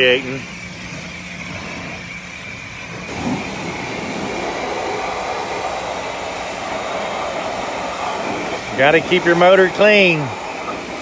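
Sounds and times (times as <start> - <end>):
low hum: 0.0 - 11.0
pressure washer spraying water: 0.0 - 11.0.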